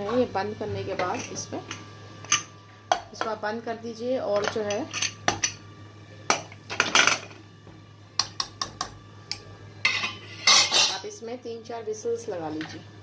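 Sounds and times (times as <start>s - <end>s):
metal lid clinking on pot: 9.9s - 11.0s.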